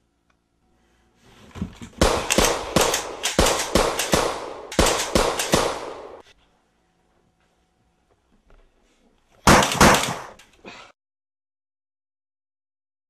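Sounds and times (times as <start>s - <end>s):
loud gunshots: 2.0s - 6.2s, 9.4s - 10.4s.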